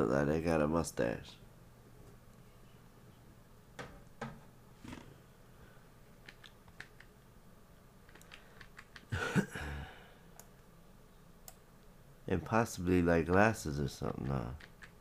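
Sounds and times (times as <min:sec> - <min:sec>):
mouse and keyboard clicks: 0:06.2 - 0:07.1, 0:08.1 - 0:09.1, 0:14.1 - 0:15.0.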